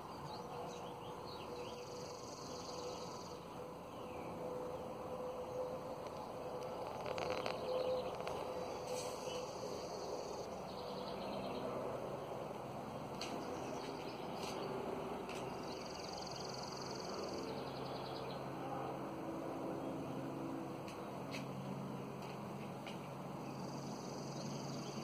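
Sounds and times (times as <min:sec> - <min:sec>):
steady low hum: 0:00.0 - 0:25.0
songbird rapid trill: 0:15.4 - 0:18.5, 0:23.5 - 0:25.0.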